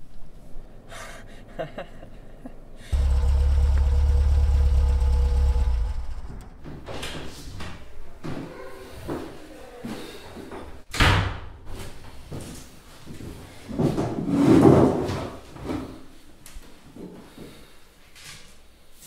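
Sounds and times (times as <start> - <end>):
car engine hum: 2.9 - 6.8.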